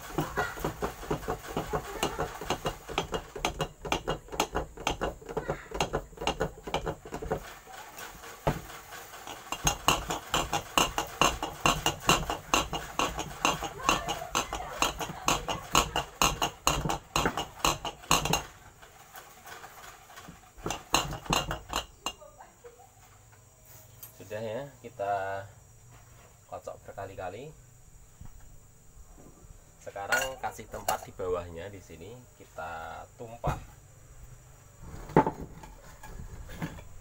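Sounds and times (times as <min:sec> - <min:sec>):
compressor metallic rattling: 0:00.0 - 0:22.3.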